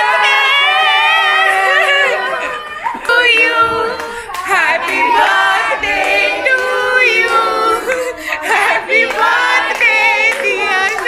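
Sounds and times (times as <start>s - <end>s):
group of people singing: 0.0s - 11.0s
hands clapping: 2.9s - 11.0s.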